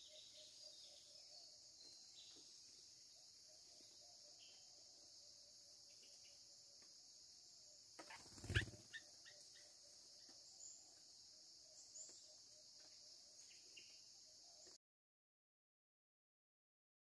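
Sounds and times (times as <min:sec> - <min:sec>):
forest insects droning: 0:00.0 - 0:14.8.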